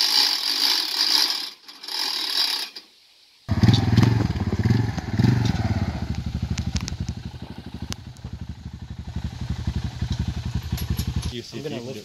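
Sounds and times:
atv engine puttering: 0:03.5 - 0:11.4.

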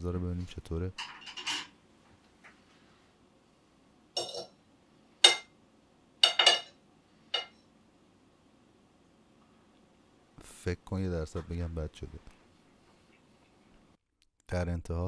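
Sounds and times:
metal cutlery clinking on plate: 0:01.0 - 0:01.8, 0:04.2 - 0:04.6, 0:06.2 - 0:06.8.

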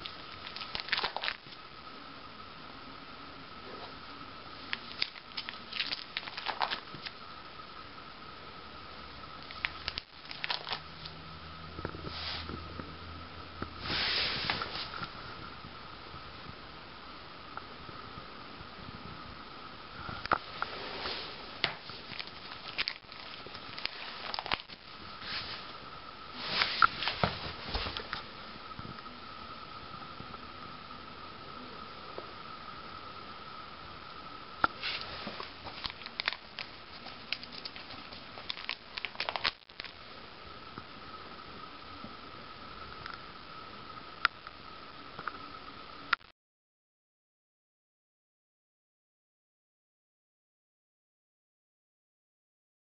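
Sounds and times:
plastic pages clicking and crinkling: 0:00.0 - 0:01.6, 0:04.7 - 0:07.1, 0:09.4 - 0:10.8, 0:21.6 - 0:24.8, 0:34.8 - 0:40.0
faint steady hum: 0:00.0 - 0:46.3
pages swishing rustle: 0:13.8 - 0:15.0, 0:26.4 - 0:28.2.

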